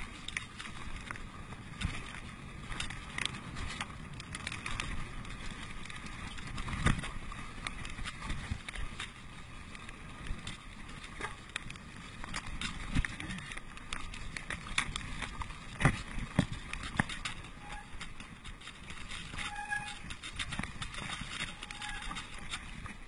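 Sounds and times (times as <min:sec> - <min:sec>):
bike rattling over bumps: 0:00.0 - 0:23.0
bike tyre rumble on dirt: 0:00.0 - 0:23.0.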